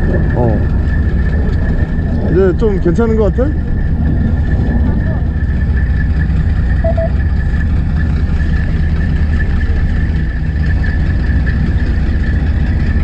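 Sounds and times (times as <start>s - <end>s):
boat engine humming: 0.0s - 13.0s
high-pitched whine: 3.6s - 7.8s.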